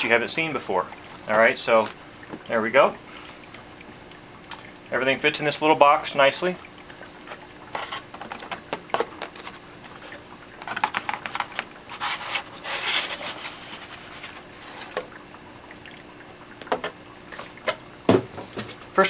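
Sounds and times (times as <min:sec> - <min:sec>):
rustling and scraping: 0:07.0 - 0:15.1.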